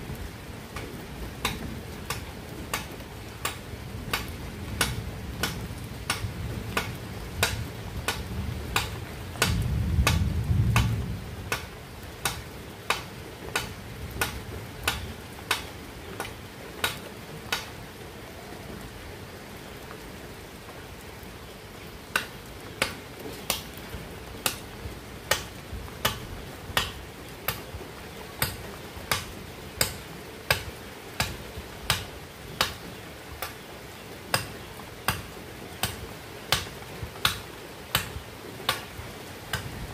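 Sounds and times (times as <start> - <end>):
machete chopping bamboo: 0.7 - 10.2, 11.5 - 17.7, 22.1 - 23.7, 24.4 - 24.6, 25.3 - 26.2, 26.8 - 27.7, 28.4 - 33.6, 34.3 - 38.9.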